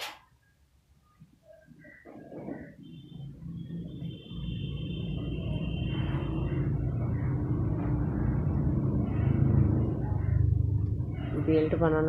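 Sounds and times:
passing motor vehicle rumble: 2.2 - 12.0.

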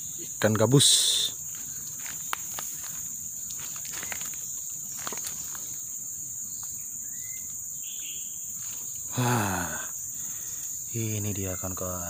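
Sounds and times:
insects droning: 0.0 - 12.0
footsteps on dry leaves: 1.4 - 5.8.

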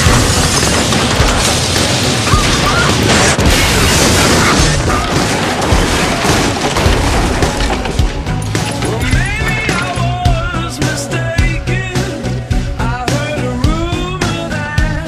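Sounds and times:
explosion blast roar: 0.0 - 8.3
rock music: 0.0 - 15.0.

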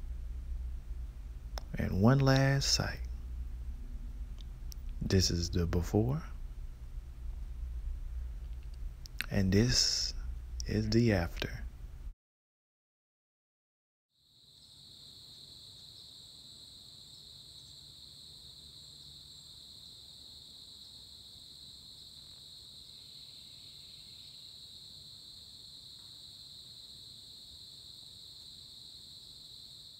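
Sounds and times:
insects trilling: 1.7 - 3.1, 9.0 - 11.6, 14.2 - 29.9.

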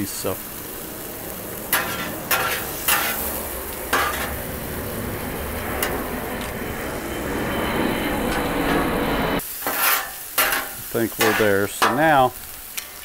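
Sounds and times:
meat sizzling on a griddle: 0.0 - 4.8, 9.4 - 13.0
low plane rumble: 0.0 - 9.4
spatulas scraping: 1.7 - 3.3, 3.9 - 4.4, 9.6 - 12.1
spatula clanks on steel: 9.7 - 12.1.

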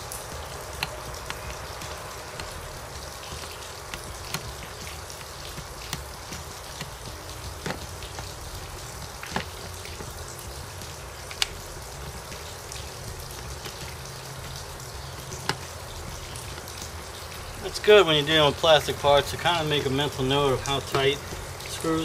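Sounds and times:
sharp plastic clicks: 0.0 - 10.5
steady background hiss: 0.0 - 22.0.

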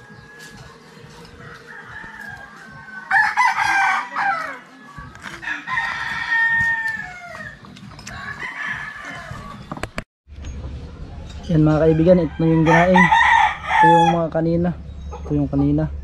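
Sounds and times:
rooster crowing: 0.0 - 9.7, 11.6 - 14.4.

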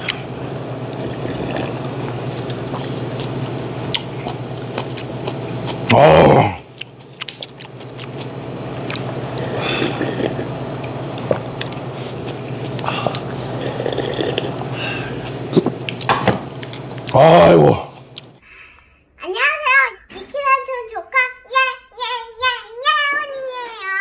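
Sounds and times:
man slurping and gulping soup: 0.8 - 6.7, 9.0 - 10.6, 11.2 - 16.0
man saying ah: 5.9 - 6.7, 17.1 - 18.0.

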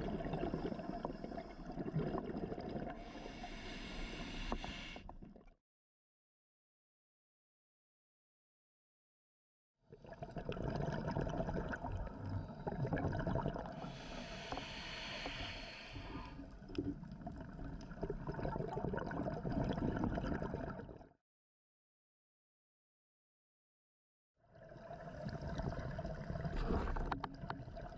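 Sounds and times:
gurgling exhaled bubbles: 0.0 - 5.4, 10.0 - 21.0, 24.6 - 27.9
regulator inhale hiss: 3.0 - 5.1, 13.8 - 16.4.

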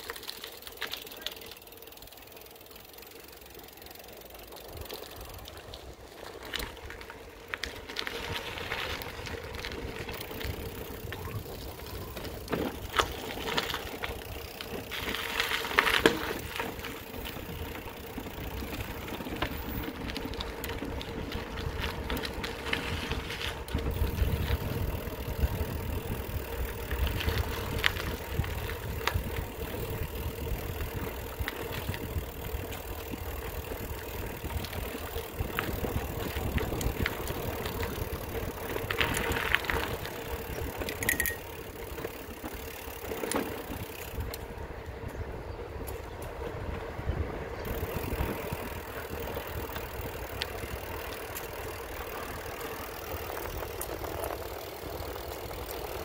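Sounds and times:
small vehicle running: 0.0 - 56.0
rattles and clicks: 30.6 - 44.4.

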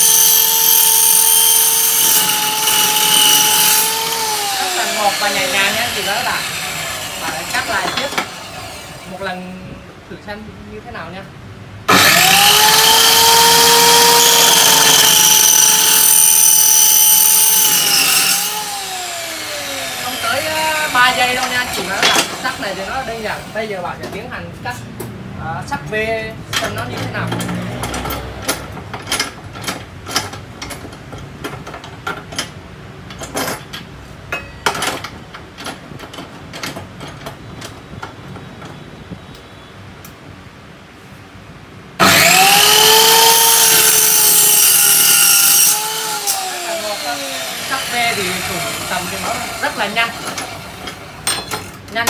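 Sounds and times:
cut-off saw cutting steel: 0.0 - 9.2, 11.9 - 23.6, 42.0 - 51.4
metal clicks and clanks: 26.5 - 38.8.

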